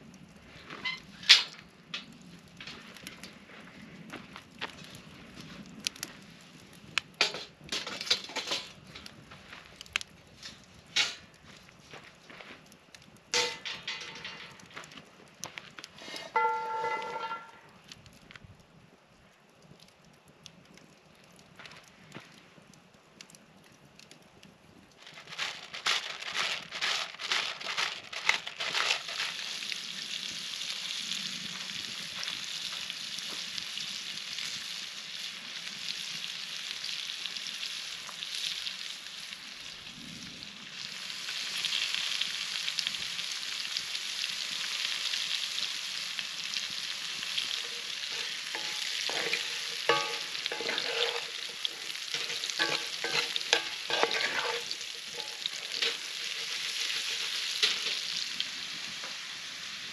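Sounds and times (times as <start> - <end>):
potatoes sizzling in a skillet: 13.3 - 14.8, 15.9 - 17.6, 25.2 - 59.9
spatula scraping and tapping pan: 13.4 - 14.8, 15.9 - 17.7, 47.4 - 58.2.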